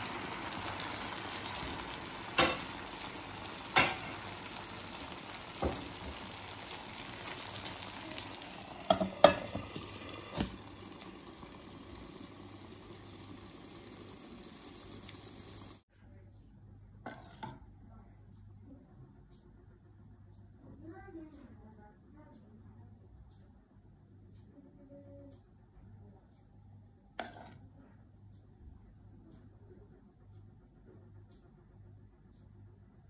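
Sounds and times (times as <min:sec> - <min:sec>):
sauce sizzling in a frying pan: 0:00.0 - 0:15.8
glass lid clicking on pan: 0:08.9 - 0:10.6.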